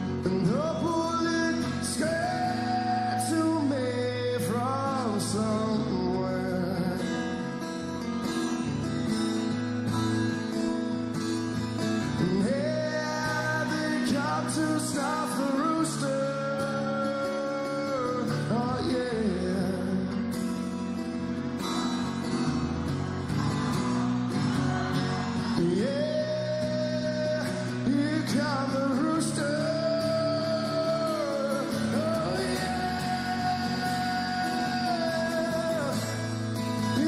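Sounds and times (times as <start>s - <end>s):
man singing: 0.0s - 7.7s, 11.8s - 20.6s, 25.1s - 37.0s
strummed acoustic guitar: 0.0s - 37.0s.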